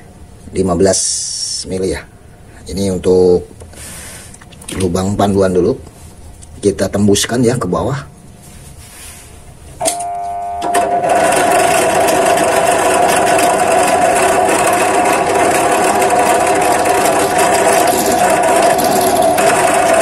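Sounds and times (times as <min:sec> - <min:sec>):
drill press motor humming: 0:09.8 - 0:20.0
drill bit cutting steel: 0:11.0 - 0:20.0.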